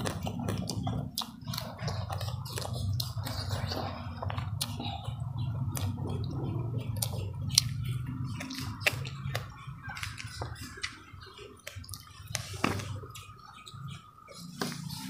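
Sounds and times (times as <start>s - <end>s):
low hum: 0.0s - 15.0s
person chewing food: 0.0s - 15.0s.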